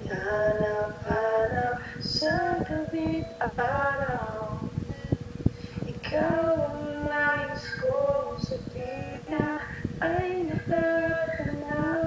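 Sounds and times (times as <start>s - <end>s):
woman singing slow melody: 0.0s - 12.0s.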